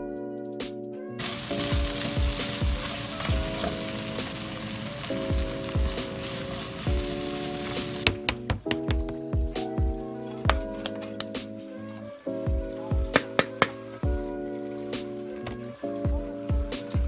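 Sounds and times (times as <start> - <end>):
stir-fry sizzling in a wok: 1.2 - 8.1.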